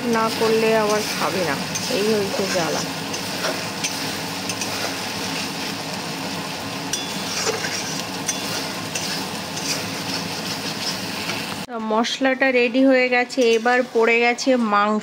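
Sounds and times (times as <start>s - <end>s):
metal spatula scraping wok: 0.0s - 6.0s, 6.9s - 11.6s
paste sizzling in oil: 0.0s - 11.7s.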